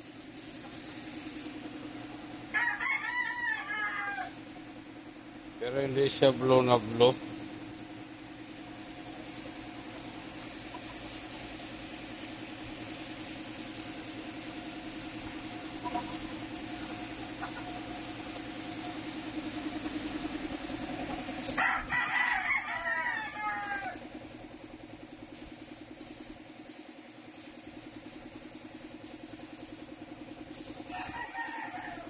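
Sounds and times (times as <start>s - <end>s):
steady mechanical hum: 0.0s - 32.0s
rooster crowing: 2.5s - 4.4s, 21.4s - 24.0s, 30.8s - 32.0s.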